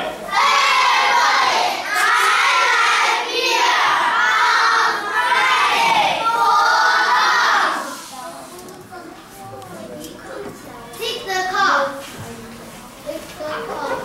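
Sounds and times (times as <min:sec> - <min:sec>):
children shouting in chorus: 0:00.3 - 0:08.0.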